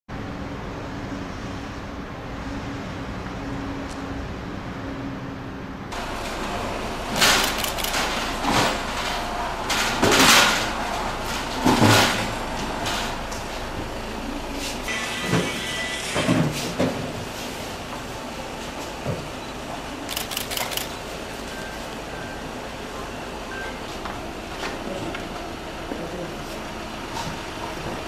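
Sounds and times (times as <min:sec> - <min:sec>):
cart rolling and clattering: 0:06.0 - 0:14.0, 0:14.6 - 0:17.7.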